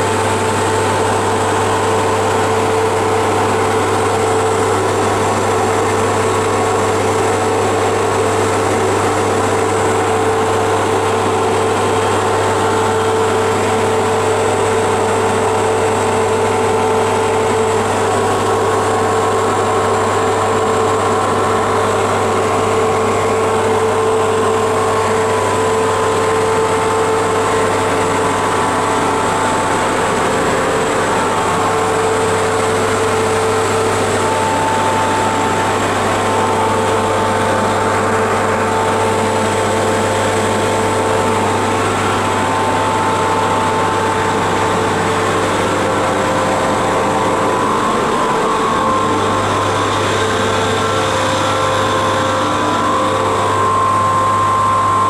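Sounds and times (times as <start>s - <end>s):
cooling blowers rushing: 0.0s - 55.0s
deep transformer hum: 0.0s - 55.0s
steady whining tone: 0.0s - 55.0s.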